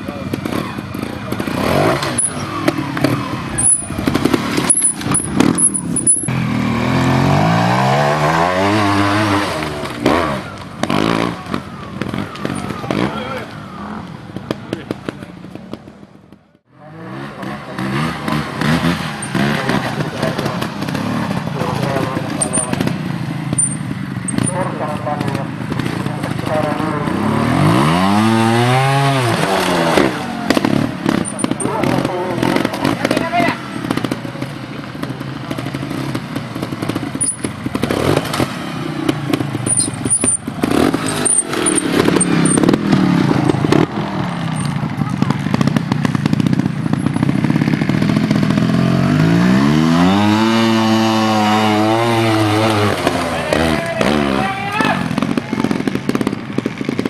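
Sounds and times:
motorcycle engine revving: 0:00.0 - 0:57.0
knocks and clatter: 0:01.4 - 0:06.3, 0:29.9 - 0:33.2.

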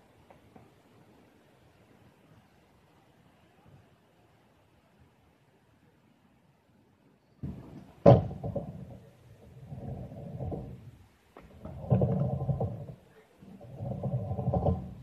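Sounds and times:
scooter wheels rumbling on concrete: 0:07.4 - 0:15.0.

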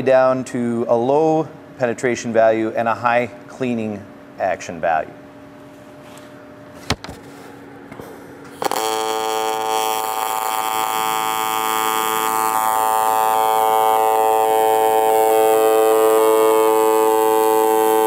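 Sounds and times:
welding arc buzzing: 0:08.4 - 0:18.0.

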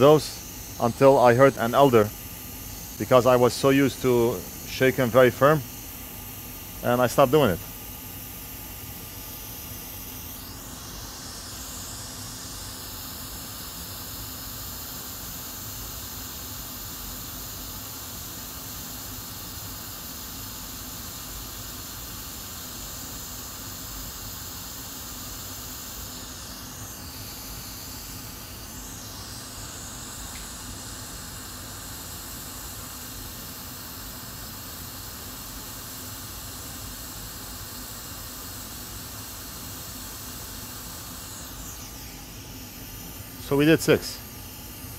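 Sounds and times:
hot air station hissing: 0:00.0 - 0:44.9.

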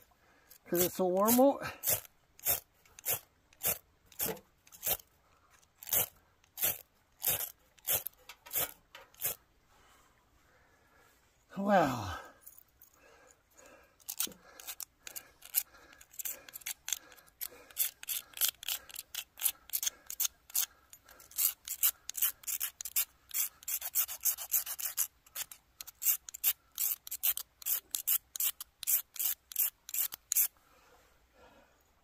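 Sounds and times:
ferro rod scraped with striker: 0:00.5 - 0:05.0, 0:05.6 - 0:09.4, 0:14.0 - 0:30.6.

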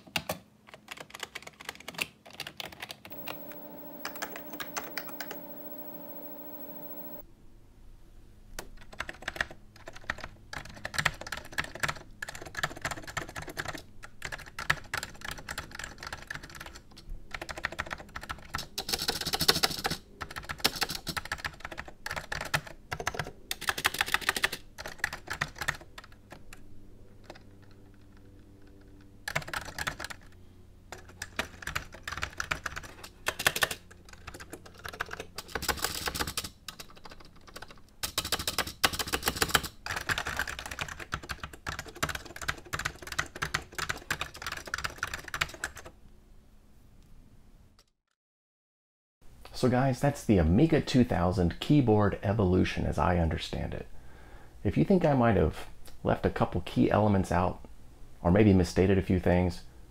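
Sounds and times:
keyboard keystroke clacks: 0:00.0 - 0:07.2.

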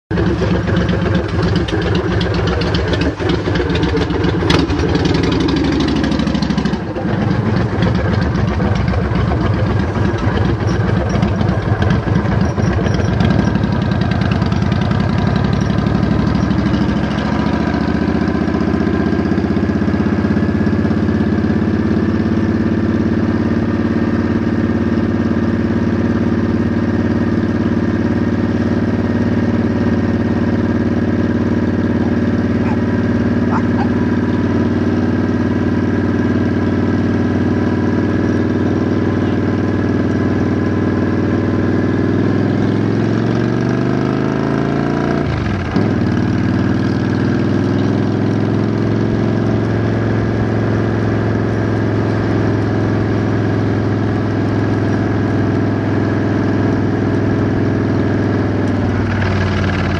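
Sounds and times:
vehicle engine running: 0:00.1 - 0:59.9.

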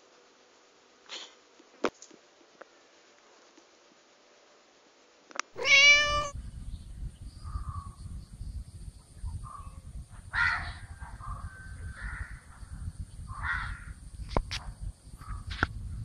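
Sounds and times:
cat meowing: 0:05.6 - 0:06.4.

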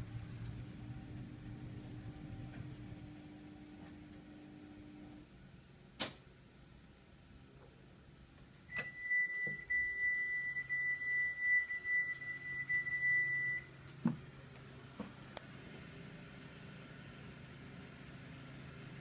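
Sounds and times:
washing machine electronic beep: 0:08.7 - 0:13.7.

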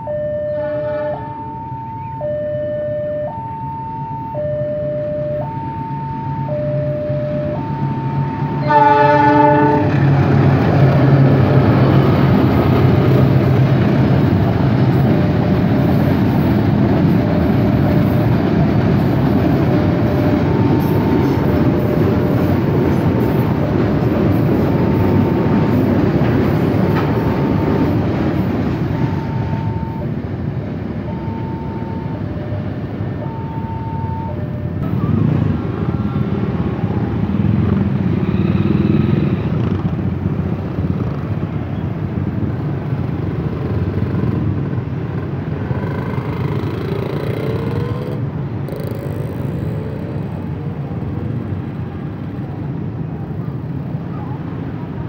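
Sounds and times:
level-crossing warning signal: 0:00.0 - 0:10.0, 0:17.7 - 0:37.8, 0:45.5 - 0:52.0
freight train rumbling over rails: 0:00.0 - 0:55.0
motorcycle engines revving: 0:34.8 - 0:41.8, 0:42.4 - 0:52.1.

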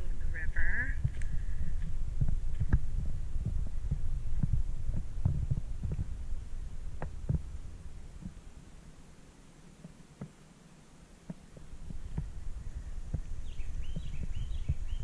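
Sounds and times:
low rumble: 0:00.0 - 0:08.6
soft thumps on microphone: 0:01.8 - 0:06.1, 0:13.1 - 0:14.8.

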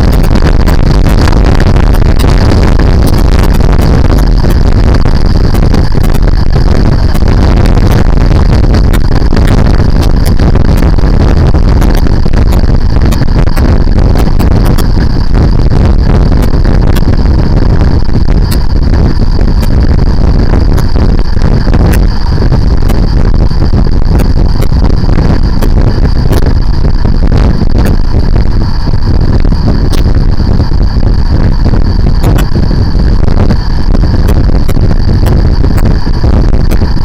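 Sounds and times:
motorcycle engine drone: 0:00.0 - 0:37.0
steady high whine: 0:00.0 - 0:37.0
wind rumble over microphone: 0:00.0 - 0:37.0.

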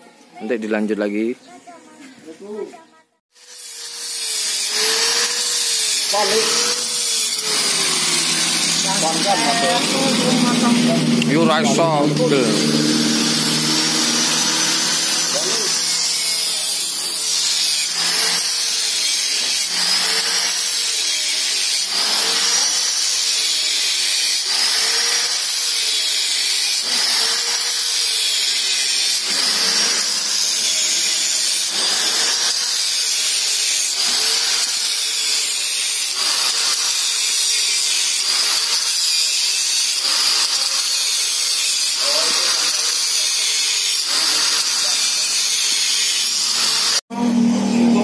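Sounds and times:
angle grinder grinding metal: 0:03.3 - 0:48.0.

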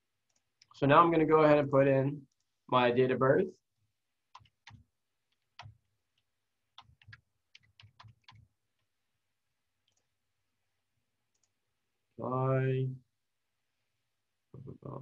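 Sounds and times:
faint mouse clicks: 0:11.3 - 0:11.6.

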